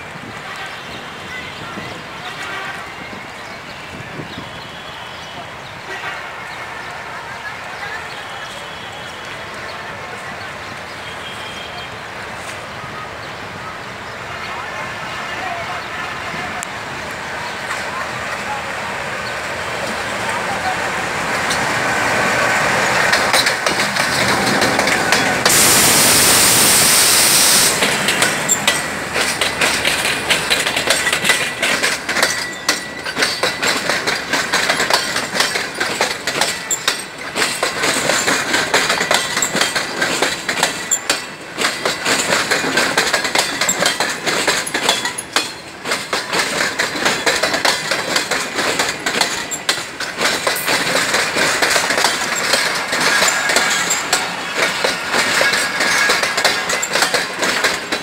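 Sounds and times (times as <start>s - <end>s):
loud rushing hiss: 19.4s - 30.5s
train wheels clicking over rail joints: 21.0s - 58.0s.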